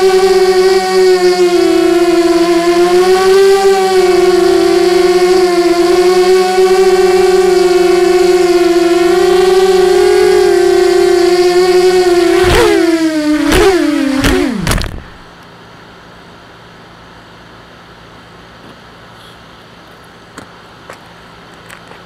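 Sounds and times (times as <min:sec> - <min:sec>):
drone motors whining: 0:00.0 - 0:15.4
drone touching down knocks: 0:11.1 - 0:15.3.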